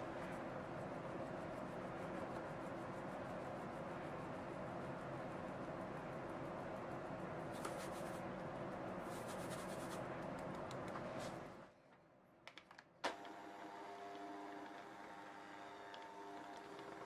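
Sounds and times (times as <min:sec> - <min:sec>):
flour rustling through a sieve: 0:07.5 - 0:08.2, 0:09.0 - 0:10.0.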